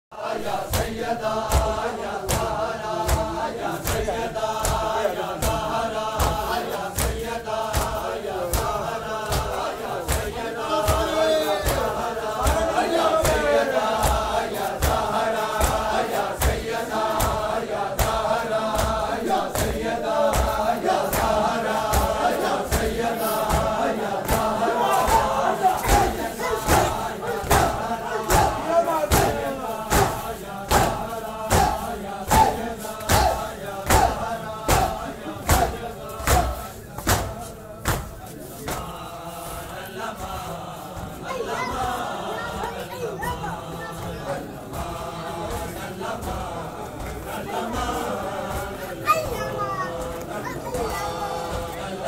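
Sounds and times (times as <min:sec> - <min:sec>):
crowd of men chanting: 0:00.1 - 0:52.0
hands slapping chests: 0:00.7 - 0:39.0.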